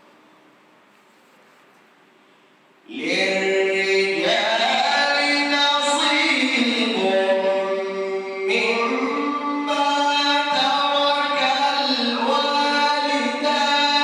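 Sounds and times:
man chanting recitation: 0:02.9 - 0:14.0.

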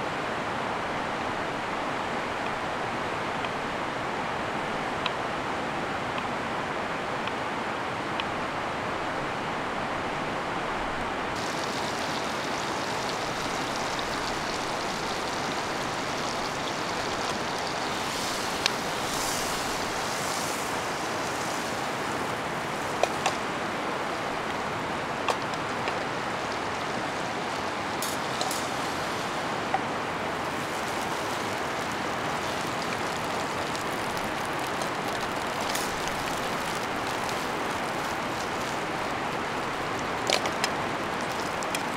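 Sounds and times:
river rapids rushing: 0:11.1 - 0:41.9
food sizzling in a frying pan: 0:11.4 - 0:29.6, 0:30.3 - 0:41.9.

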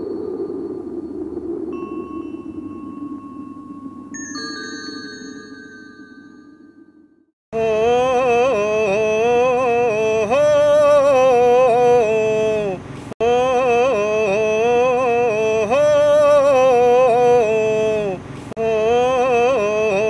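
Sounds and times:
person singing wordless melody: 0:07.5 - 0:20.0.

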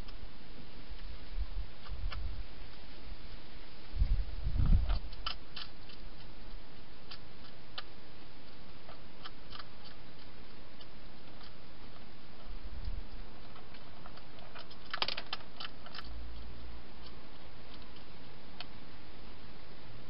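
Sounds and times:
steady hiss: 0:00.0 - 0:20.0
hedgehog crunching food: 0:04.7 - 0:18.7.

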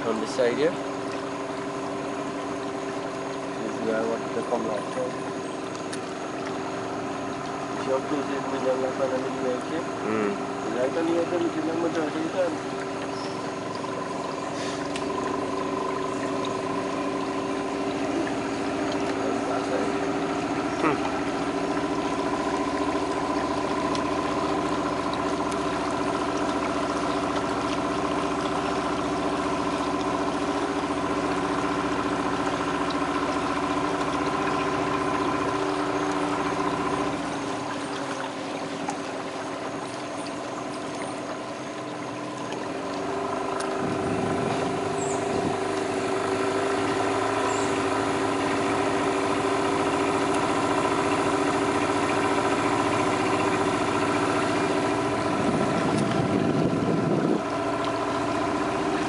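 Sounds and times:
outboard motor running: 0:00.0 - 0:59.0.

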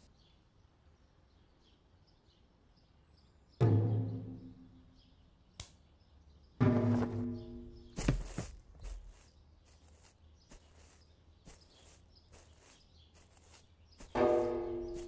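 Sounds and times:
footsteps on gravel: 0:06.7 - 0:15.0.

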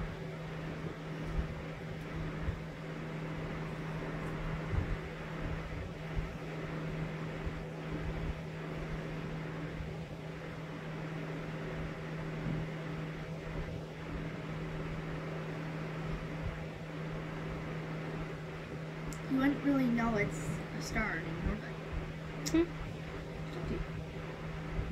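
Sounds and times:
steady mechanical hum: 0:00.0 - 0:24.9.

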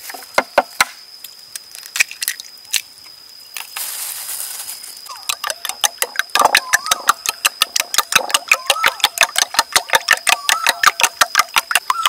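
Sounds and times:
quick clicks: 0:05.1 - 0:12.0
eggshell tapping on ceramic bowl: 0:05.4 - 0:12.0.

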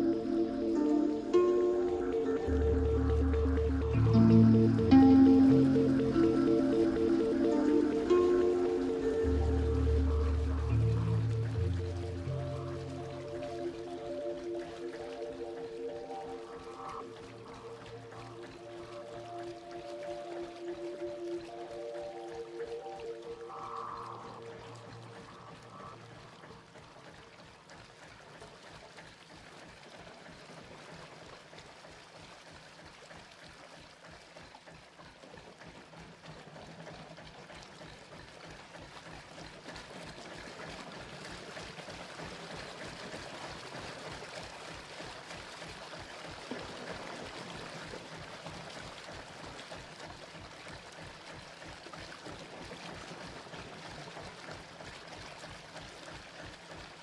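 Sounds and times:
rushing ambient electronic music: 0:00.0 - 0:27.9, 0:40.0 - 0:50.4
faint low drone: 0:00.0 - 0:28.8.

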